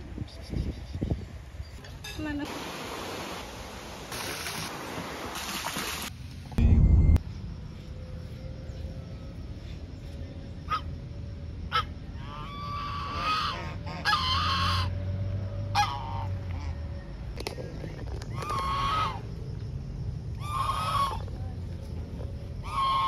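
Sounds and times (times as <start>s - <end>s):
goose honking: 11.7s - 15.0s, 15.7s - 16.4s, 18.5s - 19.2s, 20.4s - 21.2s, 22.6s - 23.0s.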